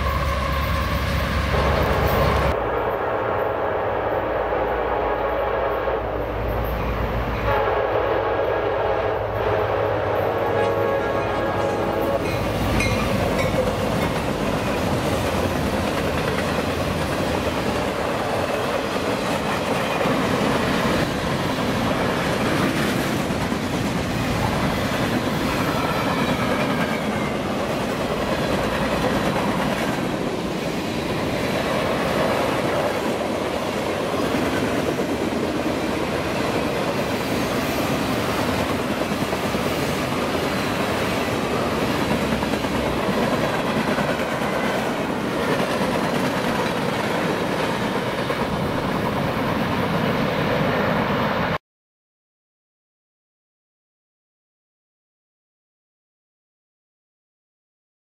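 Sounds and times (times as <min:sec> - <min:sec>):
train wheels rolling on rails: 0:00.0 - 0:02.6, 0:10.6 - 0:51.5.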